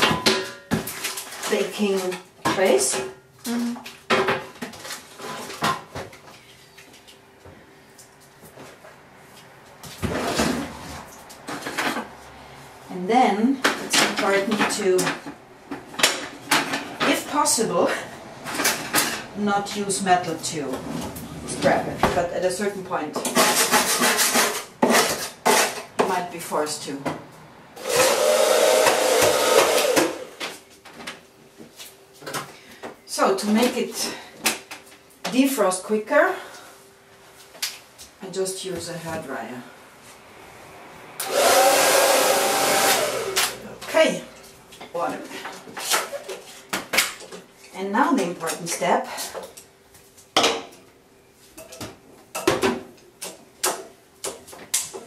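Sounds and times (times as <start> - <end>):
hair dryer blowing: 27.8 - 30.4, 41.2 - 43.6.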